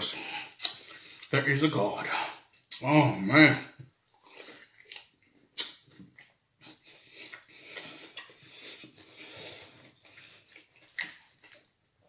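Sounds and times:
breathing: 0.2 - 1.3, 6.7 - 10.5
man chewing: 0.2 - 1.3, 4.0 - 12.0
wet mouth clicks: 0.6 - 0.9, 4.4 - 6.3.

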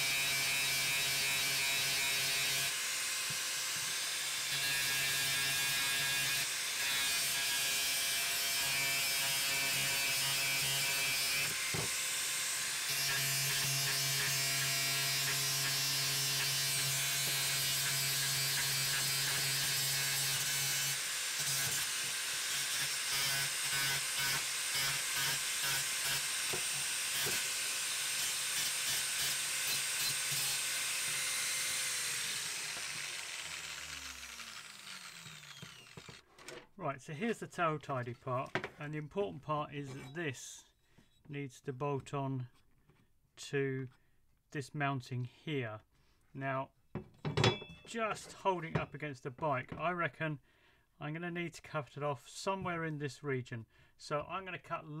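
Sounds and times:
angle grinder cutting metal: 0.0 - 36.2
grinder motor winding down: 30.0 - 36.2.

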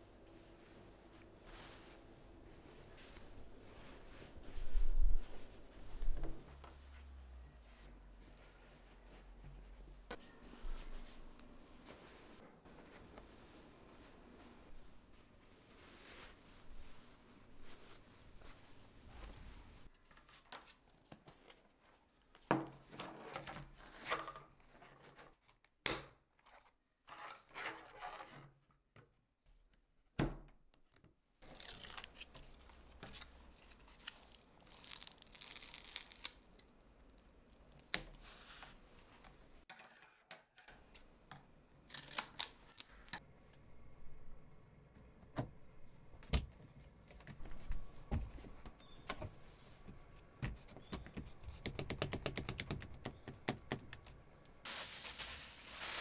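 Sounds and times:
tape pulled off roll tearing: 33.9 - 38.1.

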